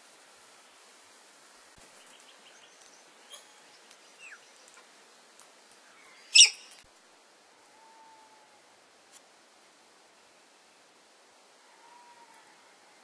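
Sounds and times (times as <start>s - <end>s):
faint bird chirps and whistles: 2.0s - 4.7s, 5.9s - 6.8s
loud harsh bird call: 6.1s - 6.8s.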